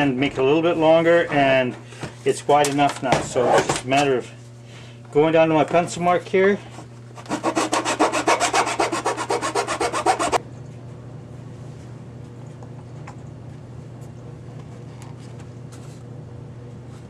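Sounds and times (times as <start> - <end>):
hand file rasping on plastic: 7.2 - 10.4.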